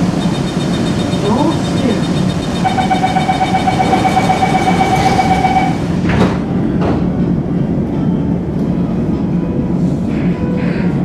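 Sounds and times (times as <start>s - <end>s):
rapid warning beeps: 0.0s - 5.9s
train hum: 0.0s - 11.0s.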